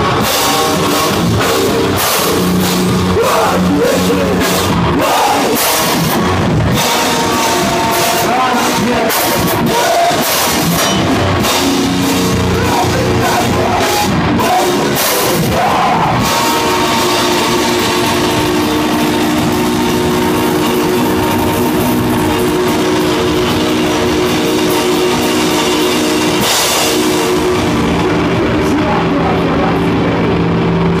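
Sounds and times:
bass guitar: 0:00.0 - 0:31.0
distorted guitars: 0:00.0 - 0:31.0
fast drums: 0:00.0 - 0:31.0
shouted vocals: 0:02.8 - 0:18.7
cymbal crash: 0:04.4 - 0:09.5, 0:10.2 - 0:15.4, 0:16.2 - 0:28.7.

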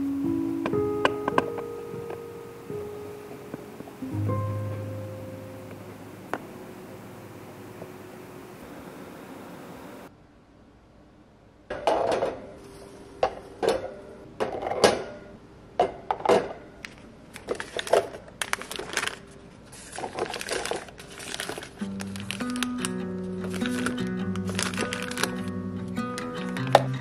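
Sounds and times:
soft background music: 0:00.0 - 0:08.7, 0:21.2 - 0:27.0
paper packets rustling: 0:16.8 - 0:27.0.

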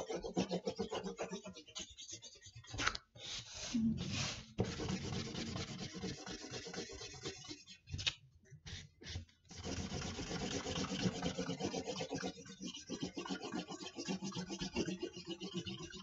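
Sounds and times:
marker scribbling on paper: 0:03.5 - 0:07.6.

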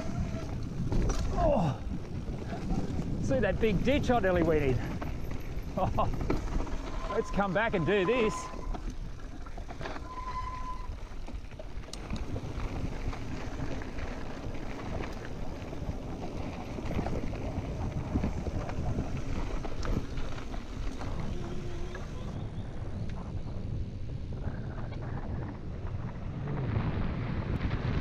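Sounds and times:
bike tyres rumbling over dirt: 0:00.0 - 0:28.0
wind buffeting microphone: 0:00.0 - 0:28.0
high squeal: 0:06.8 - 0:08.9, 0:10.0 - 0:11.1.

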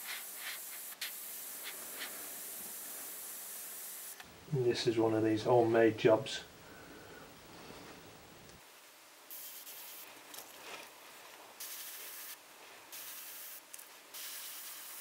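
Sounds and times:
airbrush hissing: 0:00.0 - 0:04.2, 0:09.3 - 0:10.1, 0:11.6 - 0:15.0.

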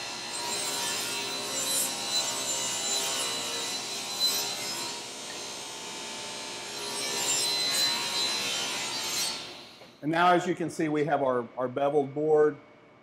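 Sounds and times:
saw cutting wood board: 0:00.0 - 0:10.0
table saw motor whine: 0:00.0 - 0:10.0.

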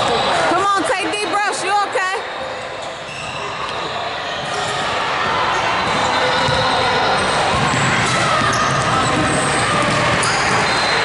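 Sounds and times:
sneaker squeaks: 0:02.3 - 0:11.0.

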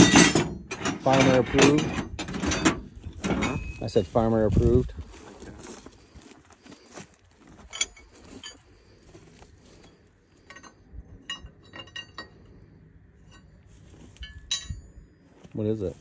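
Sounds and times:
metal wrenches clinking: 0:00.0 - 0:04.0, 0:07.6 - 0:08.7, 0:10.4 - 0:15.0.

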